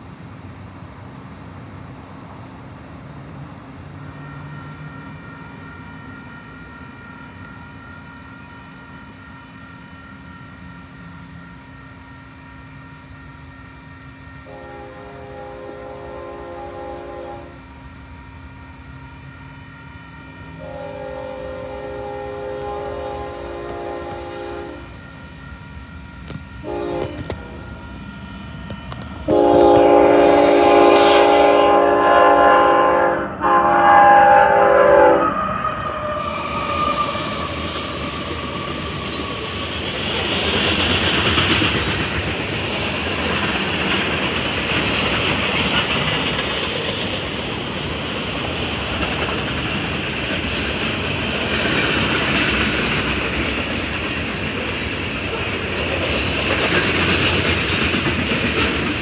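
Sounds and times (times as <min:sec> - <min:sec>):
train horn blasts: 0:14.4 - 0:17.7, 0:20.2 - 0:25.1, 0:26.3 - 0:27.8, 0:29.3 - 0:36.2
train wheels clattering over rail joints: 0:37.5 - 0:59.0.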